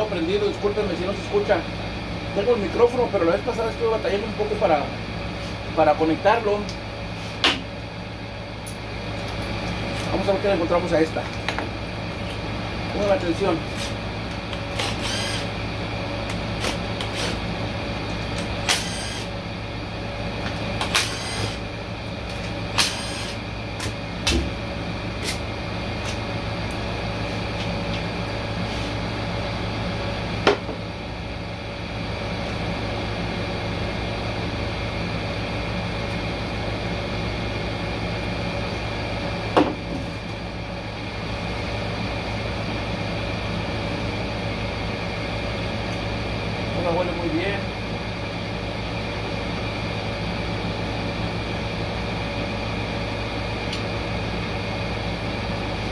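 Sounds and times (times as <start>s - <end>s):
air conditioner hum: 0.0s - 55.9s
power ratchet whirring: 13.8s - 15.6s, 16.6s - 17.4s, 18.4s - 19.4s, 20.8s - 21.6s, 22.3s - 24.0s.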